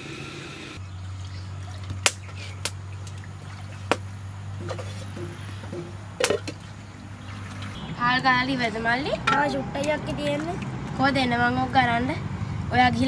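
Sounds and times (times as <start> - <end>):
pots and firewood clicking: 4.6 - 6.6.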